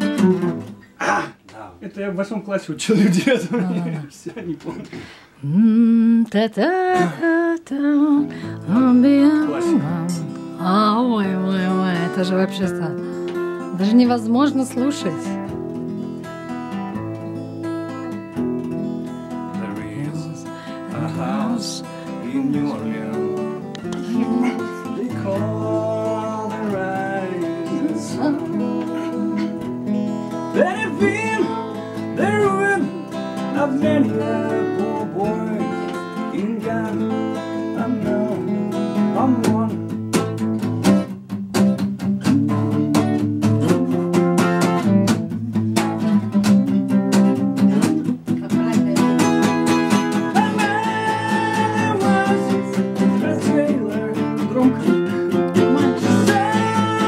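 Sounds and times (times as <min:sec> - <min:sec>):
acoustic guitar strummed chords: 0:00.0 - 0:01.4, 0:06.7 - 0:57.0
acoustic guitar picked melody: 0:00.0 - 0:02.3, 0:04.9 - 0:57.0.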